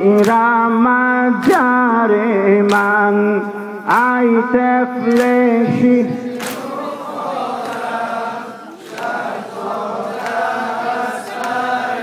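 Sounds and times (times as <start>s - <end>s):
group chanting a lament: 0.0s - 12.0s
chest-beating slaps: 2.6s - 3.0s, 5.1s - 5.4s, 6.4s - 6.8s.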